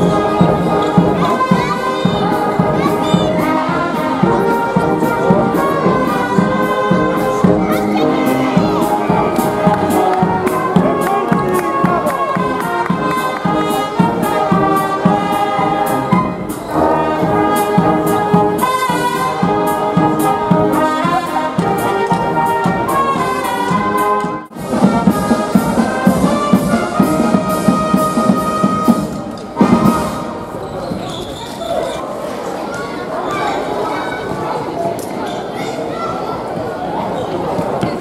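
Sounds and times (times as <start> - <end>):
steady drum beat: 0.0 - 30.4
brass band playing: 0.0 - 30.7.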